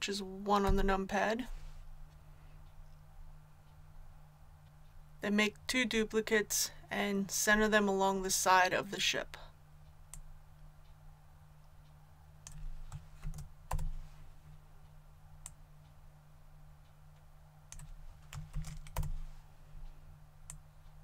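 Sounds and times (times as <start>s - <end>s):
low steady hum: 0.0s - 21.0s
keyboard keystrokes: 17.7s - 19.2s.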